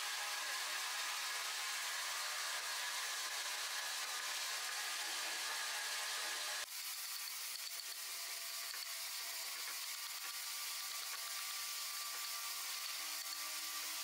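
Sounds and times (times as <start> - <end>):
chisel shaving wood: 0.0 - 14.0.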